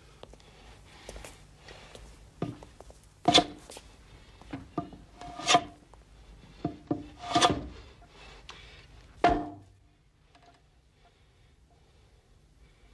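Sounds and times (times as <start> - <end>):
hand plane scraping wood: 5.2 - 5.8, 6.9 - 7.7.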